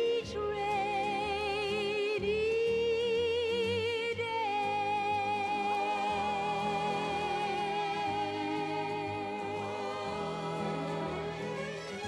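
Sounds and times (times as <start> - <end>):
orchestral song from vinyl record: 0.0 - 12.0.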